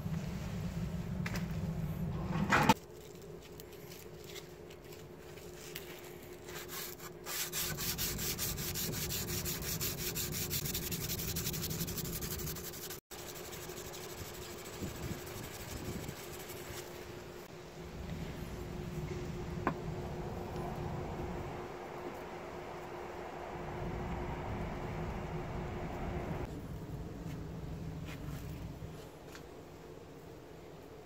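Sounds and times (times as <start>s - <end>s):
hand-sanding knife blade: 6.5s - 16.8s.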